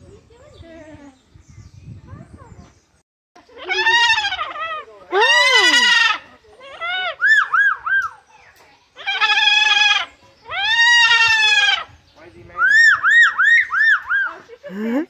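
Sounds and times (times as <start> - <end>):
cockatoo calling: 3.4 - 8.3, 9.0 - 12.0, 12.6 - 14.5.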